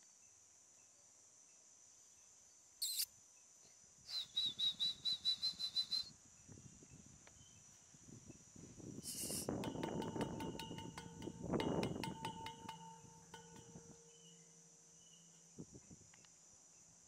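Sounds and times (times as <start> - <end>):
bird calling in pulsed notes: 2.8 - 3.1
sharp high bird chirp: 2.8 - 3.1.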